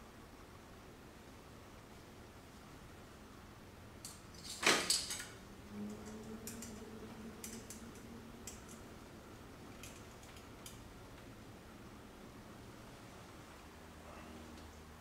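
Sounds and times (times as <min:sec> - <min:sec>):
metal parts clicking: 0:04.0 - 0:08.8, 0:09.7 - 0:10.8.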